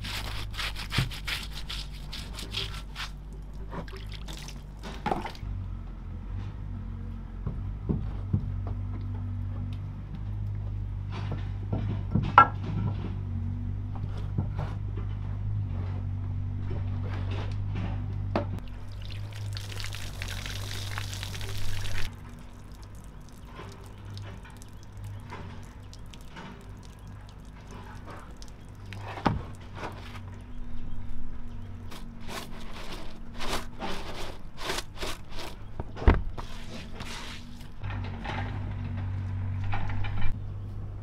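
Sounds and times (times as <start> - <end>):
low steady hum: 0.0 - 41.0
liquid pouring: 18.6 - 29.2.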